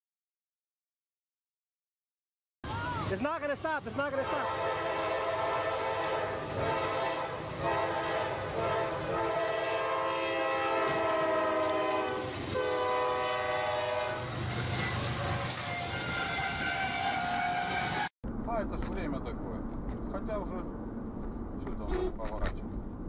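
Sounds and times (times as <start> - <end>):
passing train rumble: 2.7 - 23.0
locomotive air horn chord: 4.3 - 18.1.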